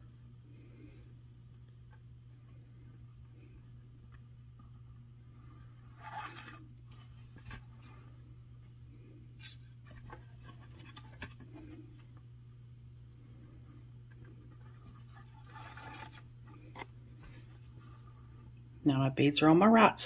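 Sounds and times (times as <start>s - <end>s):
steady low hum: 0.0s - 20.0s
fingers rustling thin cord: 1.5s - 18.5s.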